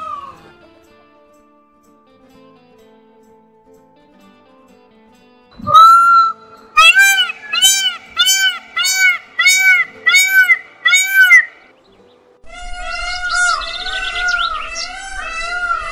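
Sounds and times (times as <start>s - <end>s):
peafowl honking calls: 5.6s - 11.6s, 12.5s - 15.9s
peafowl rising squeals: 5.6s - 11.6s, 12.5s - 15.9s.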